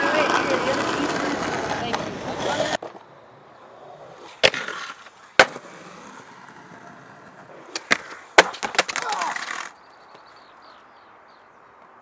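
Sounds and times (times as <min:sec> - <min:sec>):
skateboard clacking on ground: 0:00.0 - 0:03.1, 0:03.9 - 0:09.8
skateboard wheels rolling on concrete: 0:00.0 - 0:12.0.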